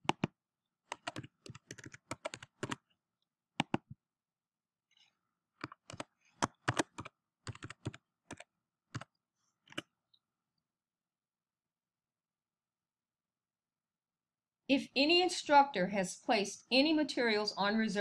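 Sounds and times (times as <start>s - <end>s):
typing on computer keyboard: 0.0s - 2.8s, 3.6s - 4.0s, 5.6s - 9.1s, 9.7s - 9.9s.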